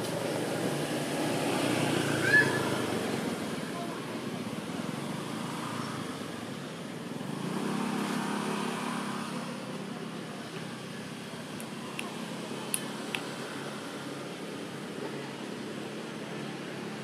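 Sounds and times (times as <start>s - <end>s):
motor vehicle passing: 0.0s - 3.8s, 7.2s - 9.8s.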